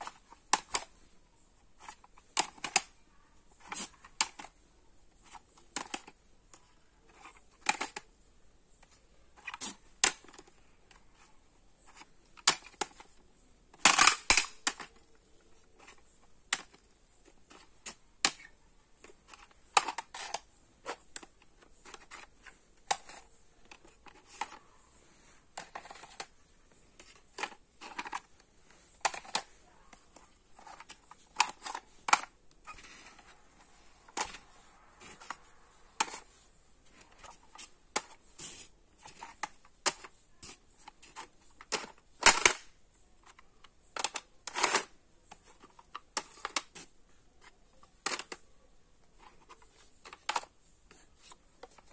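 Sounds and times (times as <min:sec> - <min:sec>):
plastic cassette cases clicking: 0:00.0 - 0:01.0, 0:01.8 - 0:02.9, 0:05.2 - 0:08.1, 0:11.9 - 0:15.1, 0:15.8 - 0:24.6, 0:25.5 - 0:26.3, 0:27.0 - 0:33.3, 0:34.0 - 0:34.5, 0:40.8 - 0:46.8, 0:47.4 - 0:48.4, 0:49.2 - 0:50.5.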